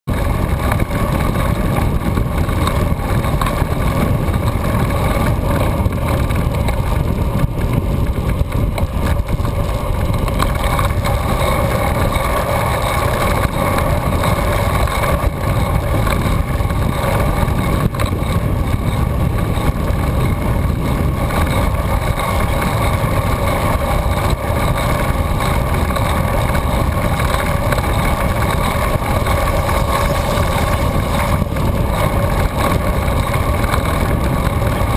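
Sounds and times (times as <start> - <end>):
wind and road noise rumble: 0.0 - 34.9
steady drone: 9.0 - 34.9.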